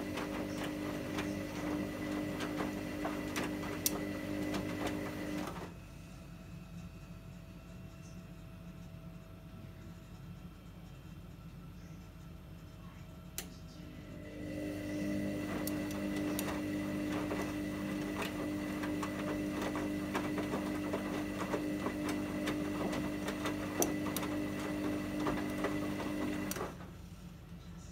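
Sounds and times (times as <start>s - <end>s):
washing machine motor whine: 0.0s - 5.8s, 13.7s - 27.2s.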